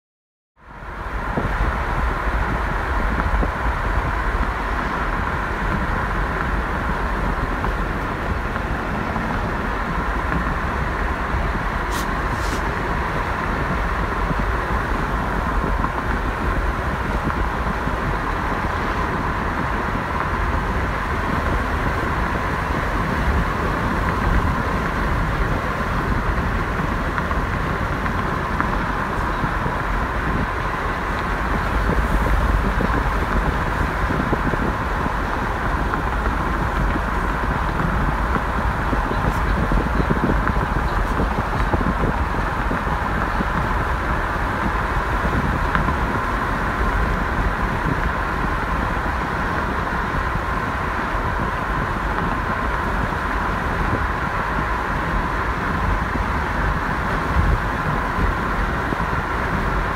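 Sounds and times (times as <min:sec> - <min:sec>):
car road noise and wind hiss: 0:00.6 - 0:59.9.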